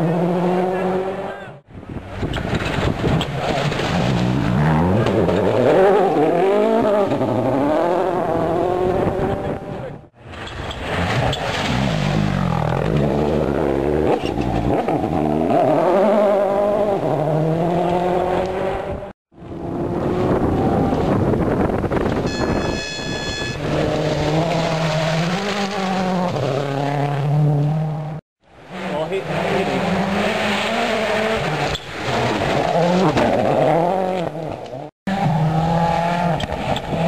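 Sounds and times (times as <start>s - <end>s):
rally car engines passing: 0.0s - 22.0s, 23.6s - 37.0s
short high steady tone: 22.3s - 23.6s.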